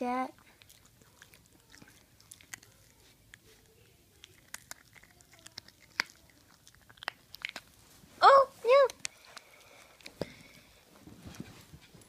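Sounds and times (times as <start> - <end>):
small dog chewing a treat: 0.3 - 7.8, 8.8 - 10.7.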